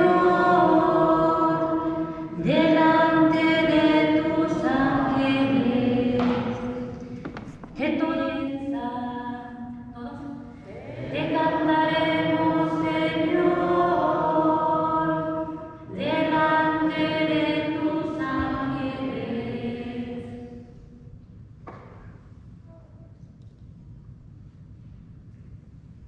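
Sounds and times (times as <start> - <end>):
church singing of a psalm: 0.0 - 9.8, 10.7 - 21.0.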